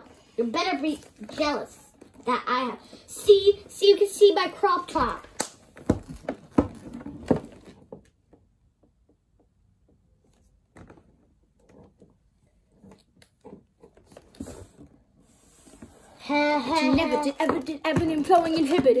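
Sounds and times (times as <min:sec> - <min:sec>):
dolls tapping on wooden floor: 0:00.6 - 0:10.0, 0:16.3 - 0:19.0.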